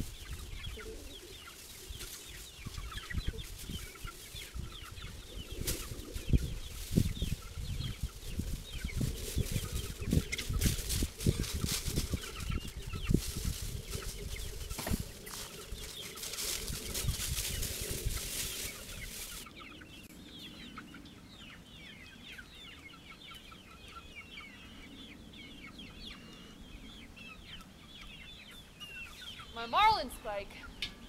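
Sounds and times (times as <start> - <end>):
wind noise on microphone: 0.0 - 19.5
chickens clucking: 0.0 - 31.0
low thuds on microphone: 14.7 - 15.1.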